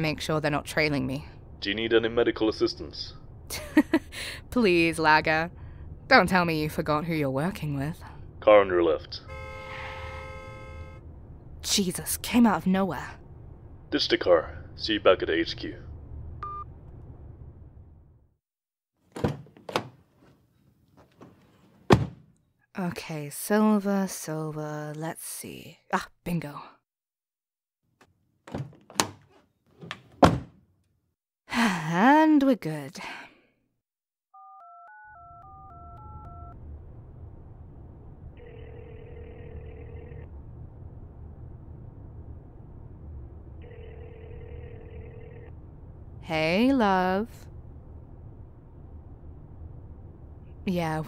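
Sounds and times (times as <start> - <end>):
low rumble: 0.0 - 9.3, 10.8 - 18.3, 35.6 - 51.0
touch-tone dialling beeps: 16.4 - 16.7, 34.4 - 36.6
car door thunks: 21.9 - 22.2, 30.0 - 30.6
telephone ringback tone: 34.4 - 36.6, 38.4 - 40.3, 43.6 - 45.5.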